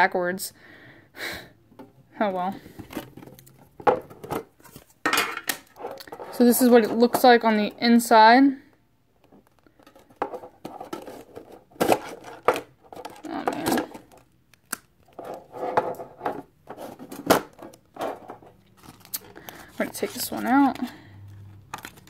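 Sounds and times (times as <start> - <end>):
plastic crackling and rustling: 2.6 - 5.0, 9.2 - 22.0.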